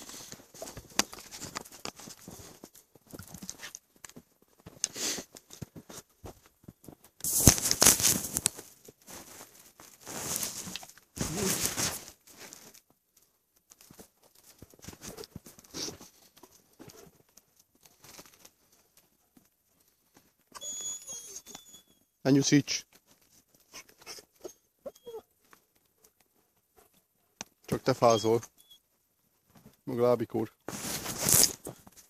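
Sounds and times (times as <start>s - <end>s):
footsteps crunching in snow: 4.9s - 12.8s, 30.7s - 32.0s.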